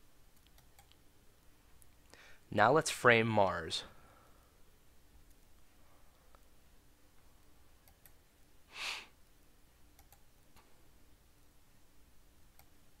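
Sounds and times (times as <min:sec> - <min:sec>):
computer mouse clicks: 0:00.3 - 0:01.0, 0:07.8 - 0:08.2, 0:09.9 - 0:10.7, 0:12.5 - 0:12.8.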